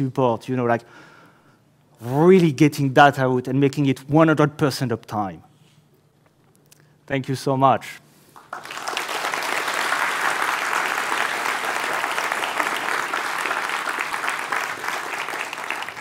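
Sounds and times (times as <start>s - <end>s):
audience applauding: 8.4s - 16.0s.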